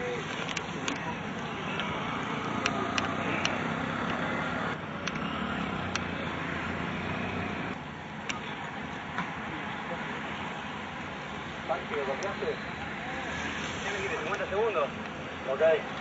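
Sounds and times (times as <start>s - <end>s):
bicycle tyres hissing on wet road: 13.2s - 14.7s.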